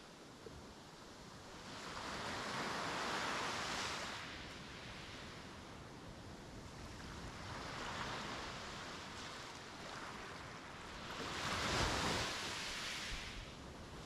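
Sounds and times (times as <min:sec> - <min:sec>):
sea waves breaking: 0:07.2 - 0:13.7.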